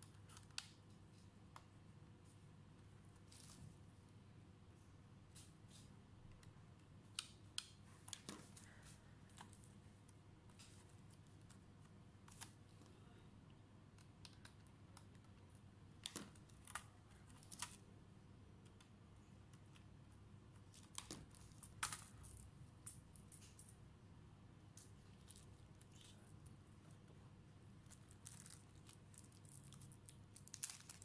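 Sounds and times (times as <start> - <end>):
faint steady hum: 0.0 - 31.0.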